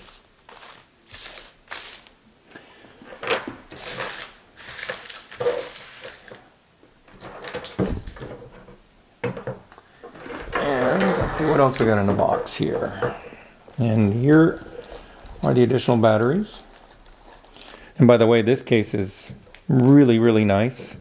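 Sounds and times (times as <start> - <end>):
plastic bags crinkling: 0.0 - 2.2, 3.7 - 6.5, 10.4 - 18.0.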